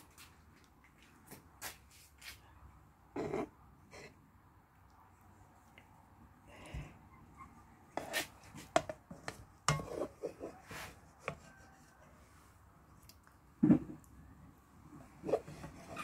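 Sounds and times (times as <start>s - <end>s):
spoon scraping a cooking pot: 8.0s - 10.6s, 15.1s - 16.0s.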